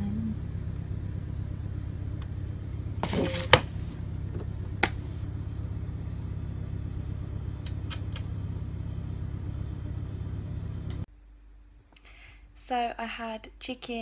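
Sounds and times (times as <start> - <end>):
kitchen machinery hum: 0.0 - 11.1.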